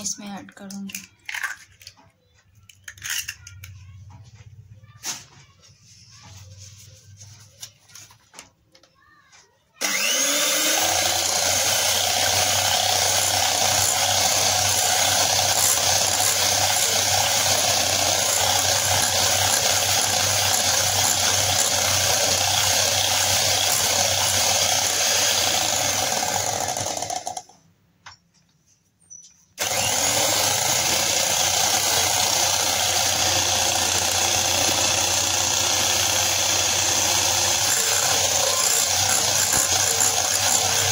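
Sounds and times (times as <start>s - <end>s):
electric hand mixer whirring: 9.8s - 27.5s, 29.6s - 40.9s.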